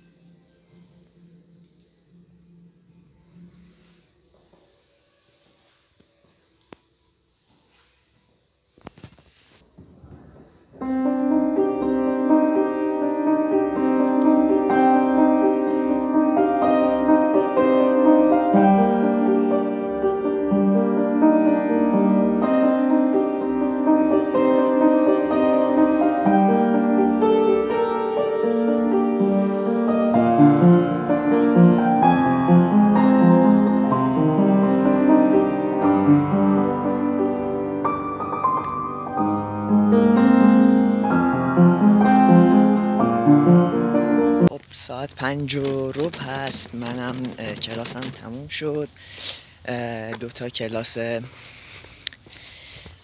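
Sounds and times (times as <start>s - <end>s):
upright piano playing: 10.8s - 48.6s.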